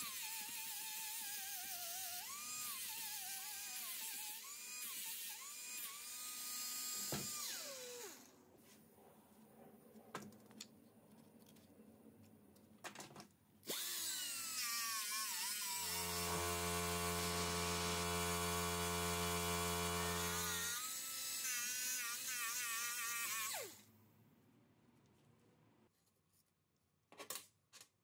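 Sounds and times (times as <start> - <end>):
power tool whining: 0.0 - 8.3, 13.7 - 23.8.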